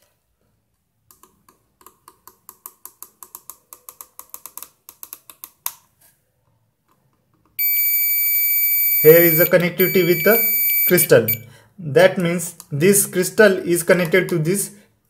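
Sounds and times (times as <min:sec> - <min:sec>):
continuity buzzer beep: 0:07.6 - 0:11.5.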